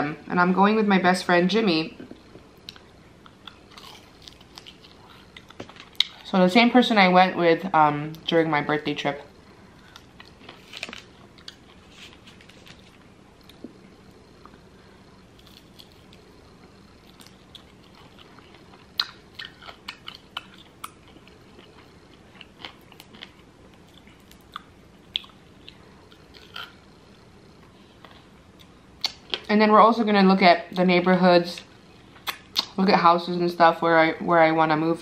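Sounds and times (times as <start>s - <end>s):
chewing and biting: 2.6s - 6.3s, 17.0s - 26.8s.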